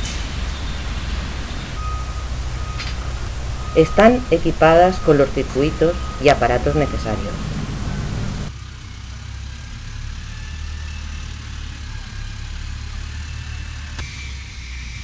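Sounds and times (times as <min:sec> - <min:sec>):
diesel engine rumbling: 0:00.0 - 0:08.8.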